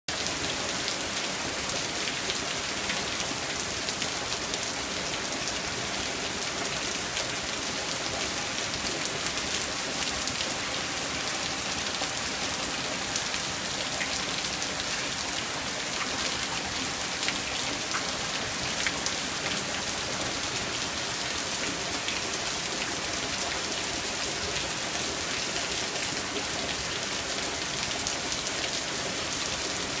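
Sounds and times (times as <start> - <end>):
heavy rain on asphalt: 0.1 - 30.0.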